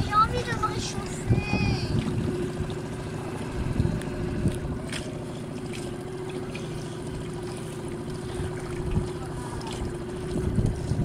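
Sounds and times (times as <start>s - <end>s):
wind on microphone: 0.0s - 2.8s, 3.5s - 4.8s, 8.3s - 11.0s
outboard motor running: 0.0s - 11.0s.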